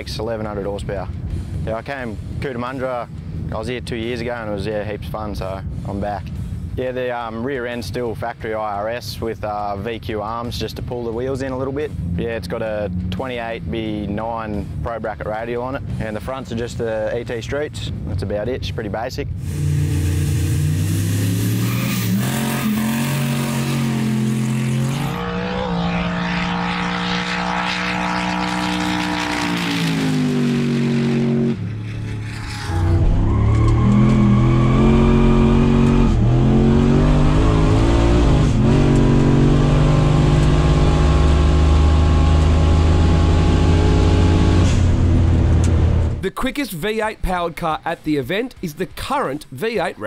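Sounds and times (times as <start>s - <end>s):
high whine: 19.3s - 39.7s
car engine revving hard: 19.4s - 31.6s, 33.6s - 45.6s.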